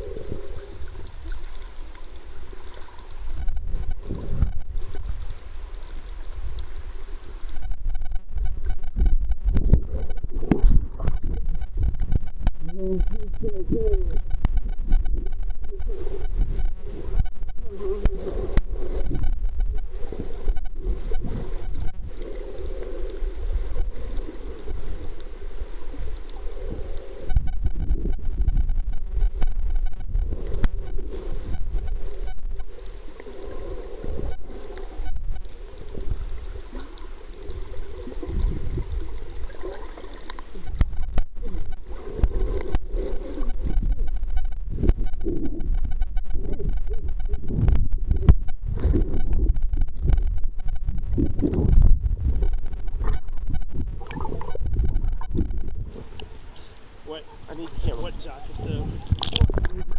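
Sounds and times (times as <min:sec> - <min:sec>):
small underwater clicks: 0:00.0 - 0:56.8, 0:58.4 - 0:59.9
underwater water rumble: 0:00.0 - 0:59.9
bubbles gurgling: 0:07.8 - 0:32.3, 0:33.4 - 0:56.6.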